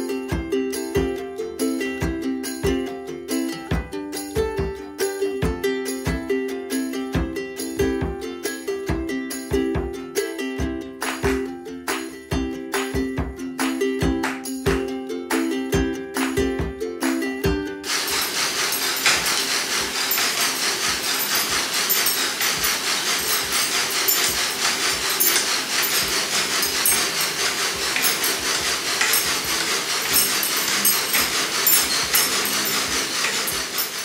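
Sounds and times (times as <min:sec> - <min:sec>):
clicks and knocks of moving parts: 0:17.8 - 0:34.0
exercise bike fan whooshing: 0:17.8 - 0:34.0.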